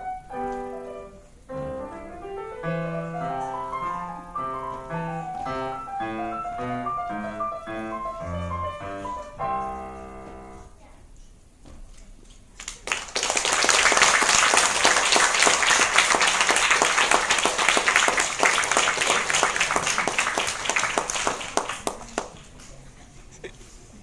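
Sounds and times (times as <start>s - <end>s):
audience applause: 12.6s - 22.6s.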